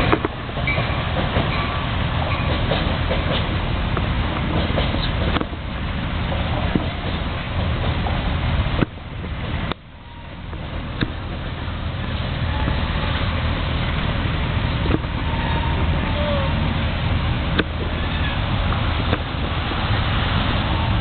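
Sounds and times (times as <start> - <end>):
electric train rolling on tracks: 0.0 - 21.0
street traffic rumble: 0.0 - 21.0.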